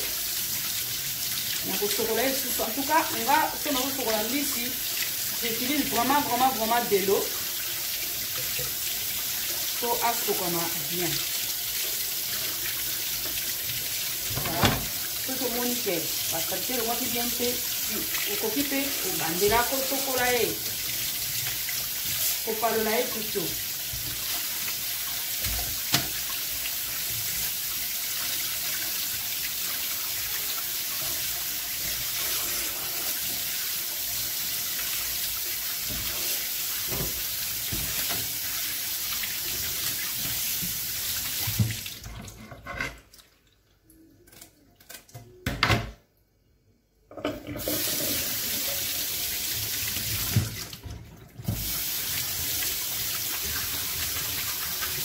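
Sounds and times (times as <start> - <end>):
tap running into sink: 14.2 - 15.1, 25.4 - 26.4, 36.8 - 38.4, 39.5 - 42.3, 49.9 - 51.8.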